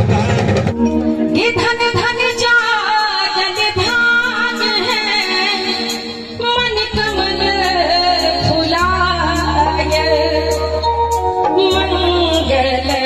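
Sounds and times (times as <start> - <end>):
woman singing through microphone: 1.2 - 13.0.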